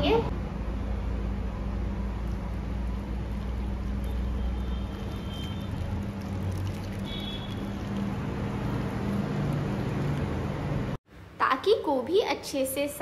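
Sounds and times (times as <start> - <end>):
low steady hum: 0.0 - 11.5
water pouring into bowl: 2.2 - 10.5.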